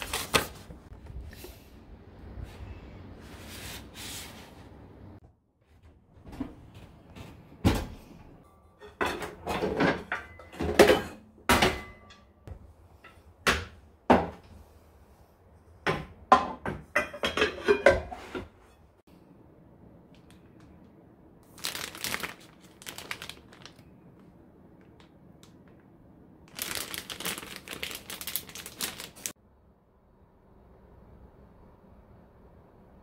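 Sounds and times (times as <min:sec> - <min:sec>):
paper bags rustling: 0:00.0 - 0:00.9, 0:21.4 - 0:23.9, 0:26.5 - 0:29.4
containers clattering in drawer: 0:08.8 - 0:12.2, 0:16.4 - 0:18.6.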